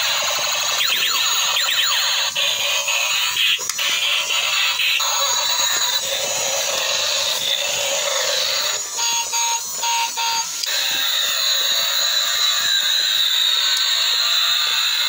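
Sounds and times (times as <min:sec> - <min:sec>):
toy electronic sound effects: 0:00.0 - 0:15.0
short electronic beeps: 0:09.0 - 0:10.5.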